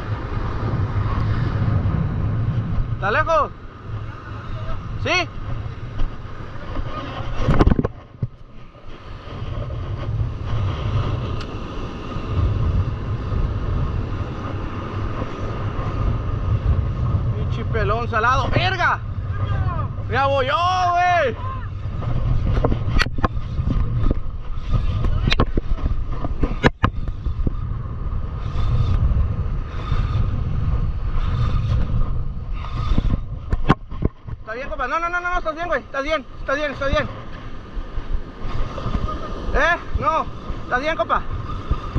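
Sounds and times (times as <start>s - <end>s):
surf washing on beach: 0.0s - 41.9s
wind buffeting microphone: 0.0s - 41.9s.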